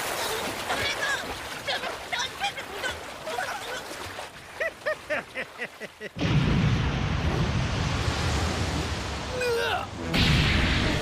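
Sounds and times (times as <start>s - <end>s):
man laughing: 4.6s - 6.2s
deep rushing rumble: 6.2s - 11.0s.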